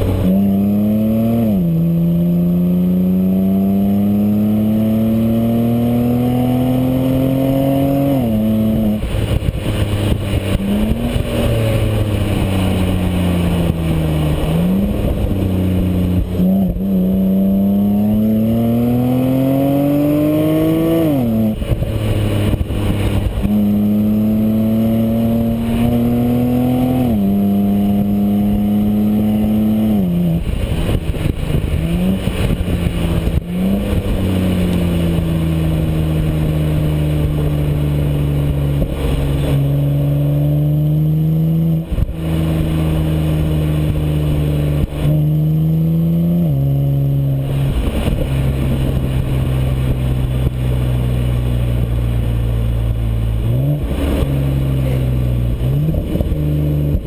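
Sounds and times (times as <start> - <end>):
car exhaust under acceleration: 0.0 - 57.0
tyre and road noise: 0.0 - 57.0.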